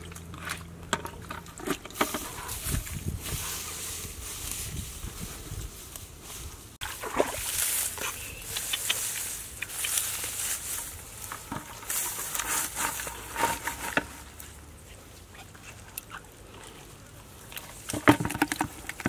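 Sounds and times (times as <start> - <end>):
water splashes and squelches: 0.0 - 4.7, 5.7 - 19.0
dry grass rustling: 1.2 - 15.8.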